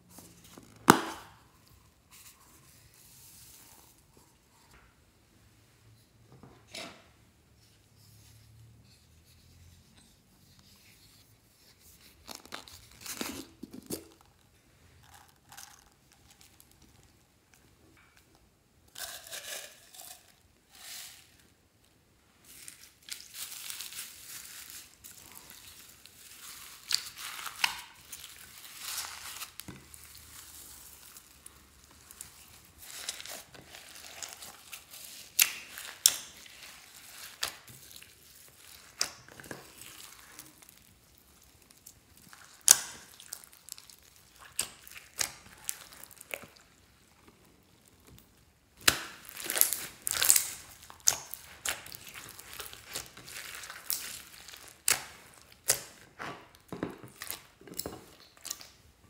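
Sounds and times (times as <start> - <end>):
hands squishing crunchy slime: 22.4 - 58.8.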